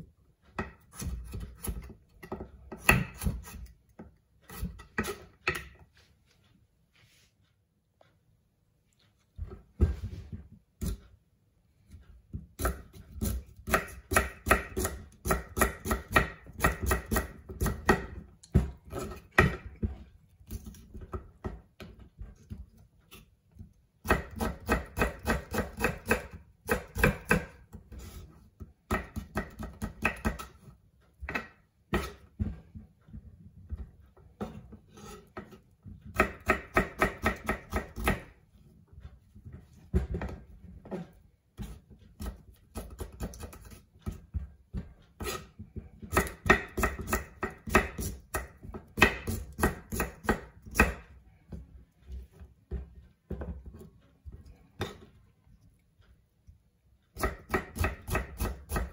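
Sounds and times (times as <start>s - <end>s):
knife chopping on wooden board: 0.6s - 5.8s, 11.9s - 28.2s, 28.9s - 38.4s, 39.9s - 51.2s, 57.2s - 58.9s.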